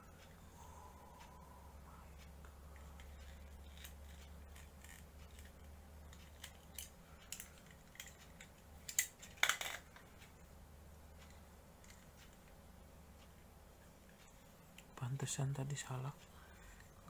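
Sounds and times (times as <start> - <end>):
faint low hum: 0.0 - 17.0
plastic model parts clicking and snipping: 3.0 - 9.8.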